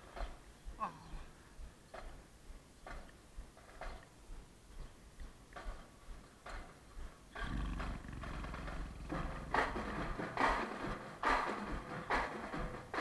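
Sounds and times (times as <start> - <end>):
faint regular ticks: 1.6 - 10.2.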